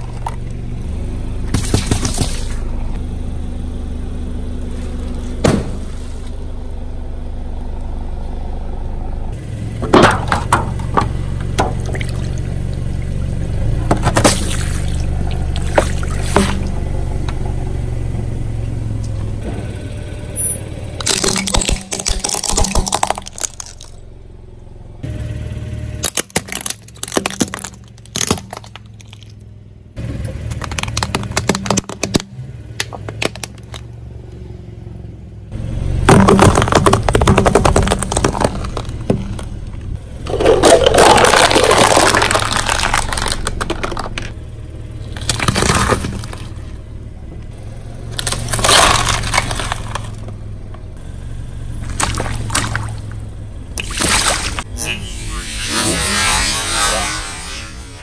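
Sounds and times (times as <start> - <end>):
car engine humming: 0.0 - 58.0
tyre crunching objects: 21.0 - 24.0, 26.0 - 29.4, 30.0 - 33.9, 36.0 - 44.4, 45.0 - 46.8, 48.1 - 50.4, 51.8 - 53.1.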